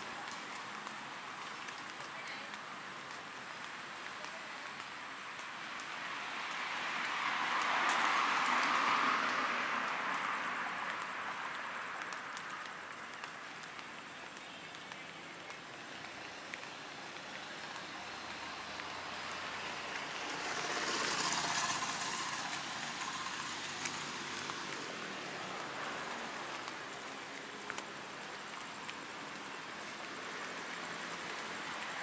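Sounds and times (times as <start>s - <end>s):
road traffic noise: 0.0s - 32.0s
vehicle passing: 6.2s - 12.1s, 16.7s - 32.0s.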